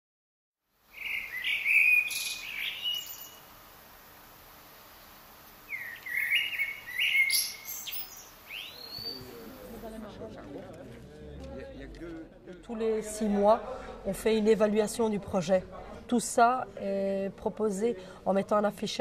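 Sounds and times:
small songbird chirping: 0.9s - 3.5s, 5.6s - 9.8s.

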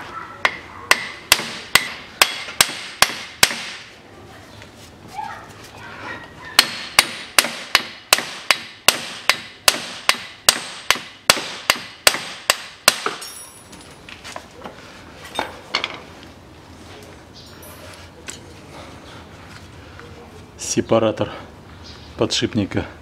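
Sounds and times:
hammer striking metal axle: 0.4s - 3.8s, 6.6s - 13.6s
light metal clinks: 13.2s - 14.0s, 17.4s - 18.6s.

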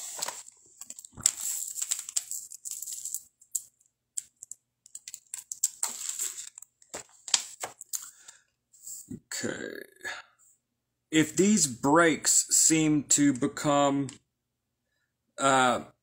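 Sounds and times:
beads clicking and rattling: 0.8s - 6.7s.

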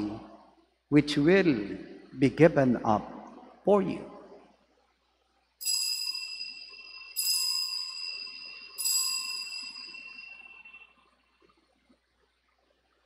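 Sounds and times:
altar bell ringing: 5.6s - 11.3s.

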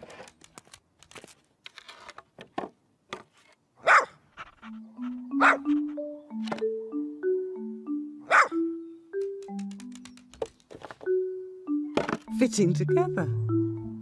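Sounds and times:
knocks of wooden boards: 2.4s - 3.3s, 11.9s - 12.3s
small dog barking: 3.8s - 4.2s, 5.4s - 5.7s, 8.3s - 8.6s
mallet percussion melody: 4.7s - 10.2s, 11.0s - 14.0s.

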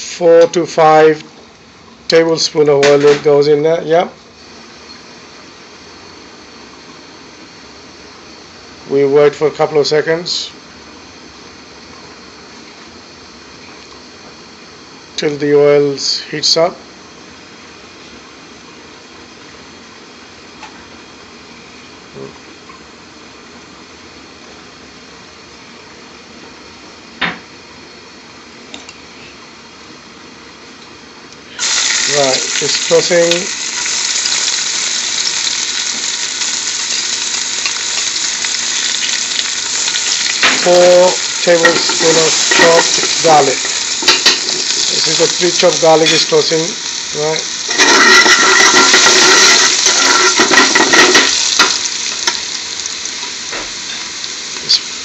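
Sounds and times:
steady background hiss: 0.0s - 55.0s
garlic sizzling in hot oil: 31.5s - 55.0s.

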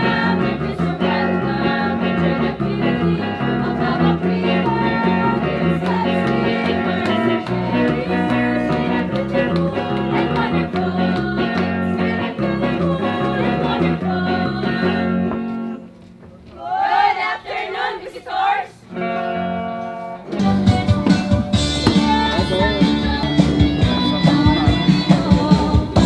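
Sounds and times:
band playing dance music: 20.3s - 26.0s
person singing: 20.4s - 26.0s.

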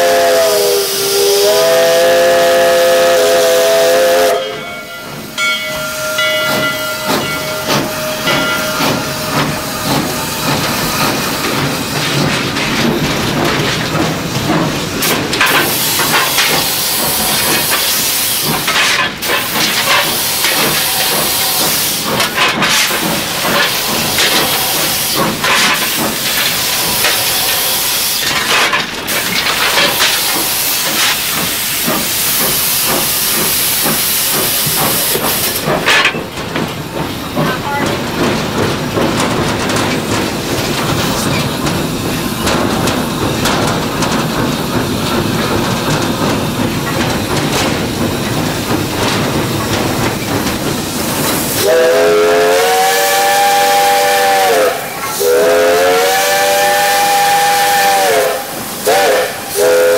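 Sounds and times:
steam whistle tone: 0.0s - 10.1s, 51.6s - 59.9s
loud steady hiss of steam: 0.0s - 59.9s
locomotive engine clatter: 5.1s - 59.9s.

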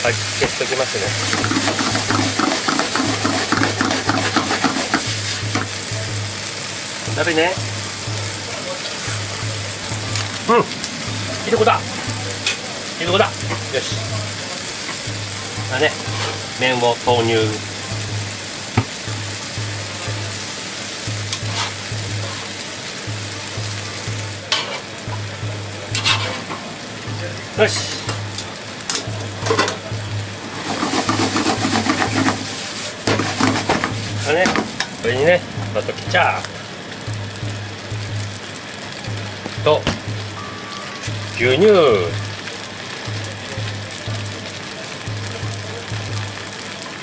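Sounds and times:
food sizzling: 0.0s - 47.0s
spatula scraping frying pan: 1.2s - 5.6s, 16.0s - 16.4s, 21.3s - 22.5s, 26.0s - 26.5s, 30.4s - 34.9s.

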